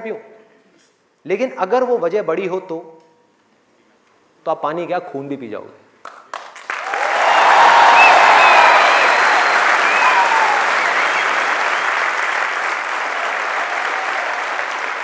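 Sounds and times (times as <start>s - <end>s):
audience applause: 6.3s - 15.0s.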